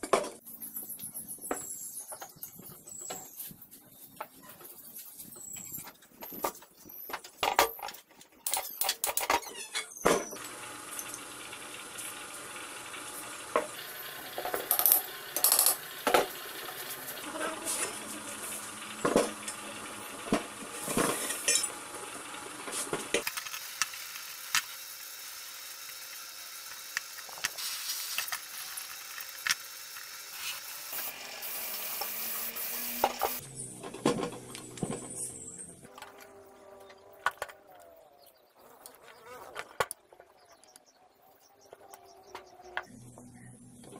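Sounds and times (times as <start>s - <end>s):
metal parts clinking and knocking: 14.4s - 16.3s.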